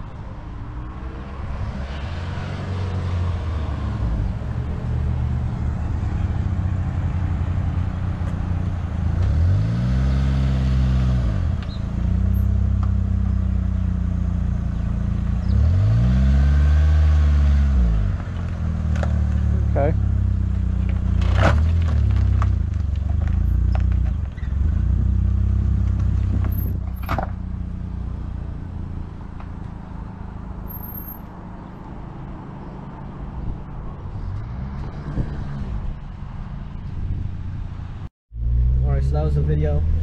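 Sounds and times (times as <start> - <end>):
car engine revving: 0.6 - 14.2, 14.8 - 26.8.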